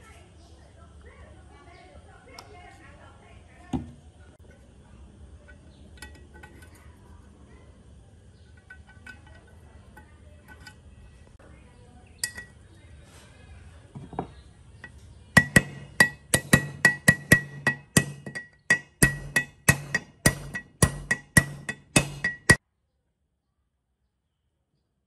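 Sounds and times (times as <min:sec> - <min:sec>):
light metal clinks: 0:05.4 - 0:06.9, 0:12.2 - 0:12.6
hammer striking metal driver: 0:15.4 - 0:22.6.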